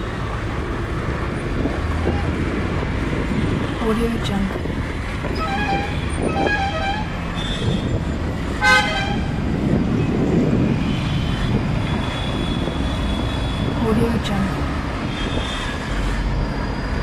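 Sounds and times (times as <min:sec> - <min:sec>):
street traffic rumble: 0:00.0 - 0:17.0
vehicle horns honking: 0:05.3 - 0:08.0, 0:08.6 - 0:09.5.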